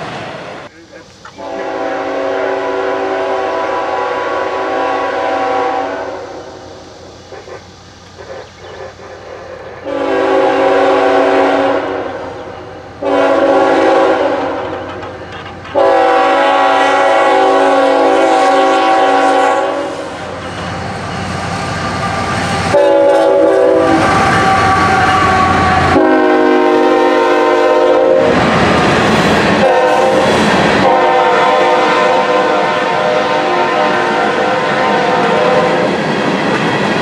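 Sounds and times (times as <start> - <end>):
train rumble: 0.0 - 37.0
locomotive air horn: 1.4 - 6.6, 9.8 - 15.0, 15.7 - 20.6, 21.9 - 28.5, 29.6 - 35.9.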